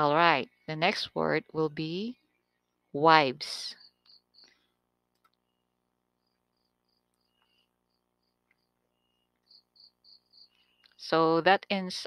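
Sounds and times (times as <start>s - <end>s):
faint high-pitched chirps: 3.6s - 11.2s.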